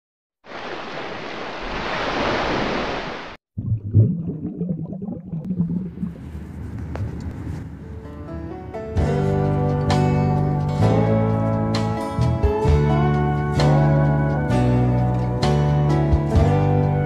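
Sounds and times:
surf-like whoosh: 0.4s - 3.4s
uneven low rumble: 5.0s - 9.8s.

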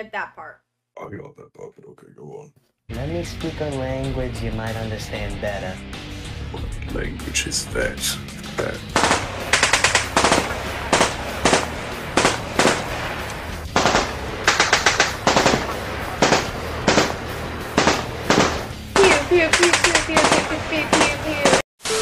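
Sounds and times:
automatic gunfire bursts: 9.0s - 13.0s, 13.8s - 17.2s, 17.8s - 21.6s.

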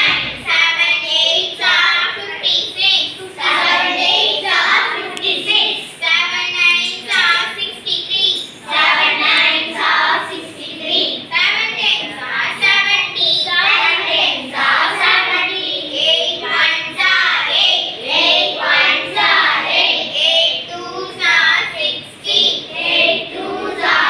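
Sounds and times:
children chanting: 0.0s - 11.3s, 12.0s - 24.0s.

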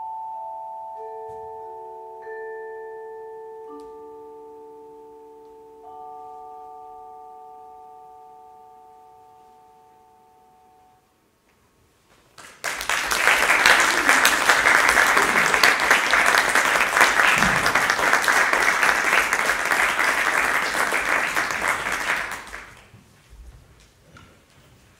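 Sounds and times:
audience applauding: 12.4s - 22.9s.

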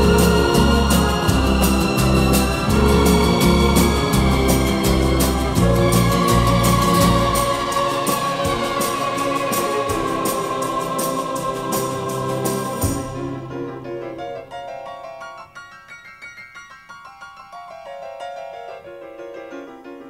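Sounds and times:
background music with steady beat: 0.0s - 14.2s
sparse keyboard notes: 0.0s - 15.9s.

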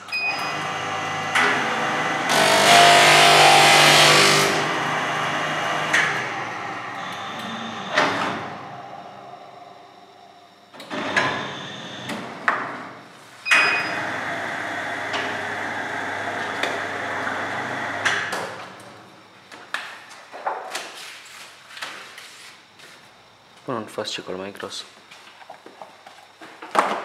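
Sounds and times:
binding machine running: 0.2s - 12.4s, 13.9s - 18.3s.

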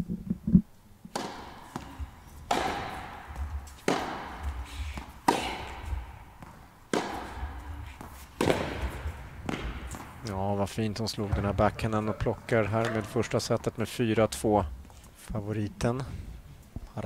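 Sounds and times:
tennis rackets hitting ball: 1.1s - 10.4s, 11.1s - 13.8s.

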